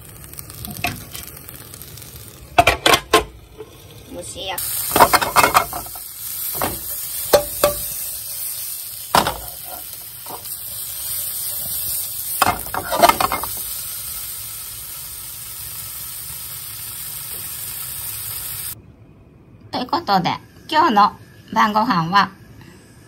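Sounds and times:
sausages sizzling in a frying pan: 0.0s - 18.8s
utensil clacking against pan: 4.9s - 6.0s, 6.6s - 7.9s.

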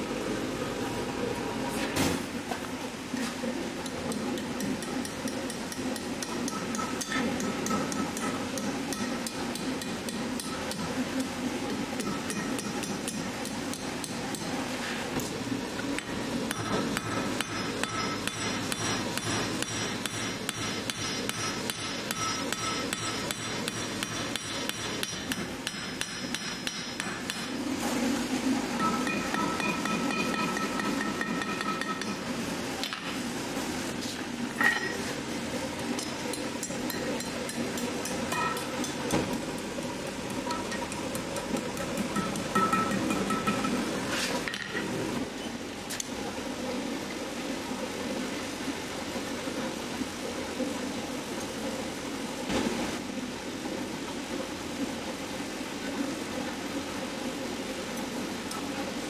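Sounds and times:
hammer striking ringing anvil: 16.5s - 27.5s, 28.8s - 32.2s, 36.9s - 39.0s, 42.1s - 43.8s.

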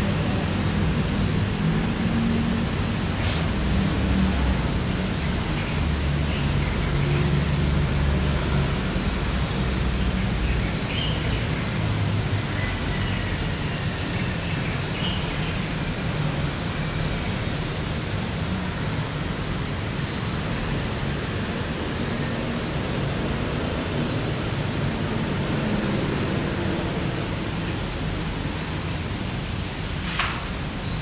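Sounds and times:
steady hiss: 29.3s - 31.0s.

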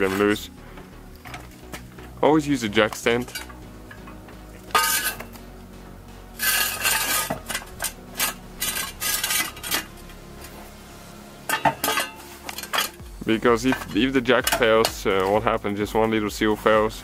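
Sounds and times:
metal jack stand clanking: 0.0s - 1.8s, 2.9s - 5.4s, 6.4s - 10.5s, 11.4s - 13.0s, 13.6s - 15.3s.

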